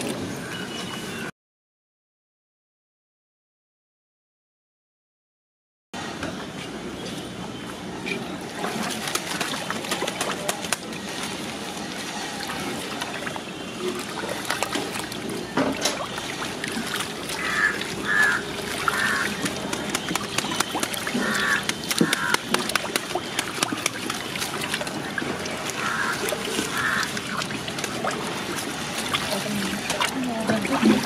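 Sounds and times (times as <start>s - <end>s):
liquid sloshing in metal vessel: 11.0s - 31.0s.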